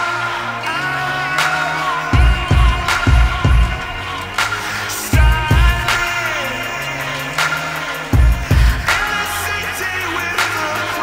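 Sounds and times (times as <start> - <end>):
song with steady beat: 0.0 - 11.0
heavy bass drum hits: 2.2 - 3.9.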